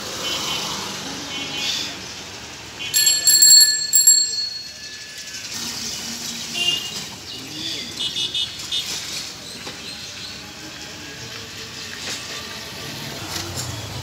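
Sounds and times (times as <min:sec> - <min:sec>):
bicycle bell ringing: 0:03.0 - 0:06.1.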